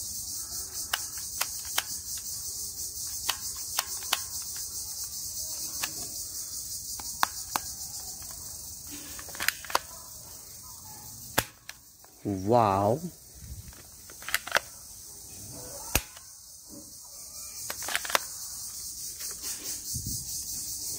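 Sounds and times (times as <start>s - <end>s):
insects chirring: 0.0s - 20.9s
toy pistol clicks: 0.5s - 6.2s, 6.9s - 8.6s, 9.2s - 10.0s, 11.3s - 11.8s, 14.1s - 14.8s, 15.9s - 16.4s, 17.6s - 18.6s.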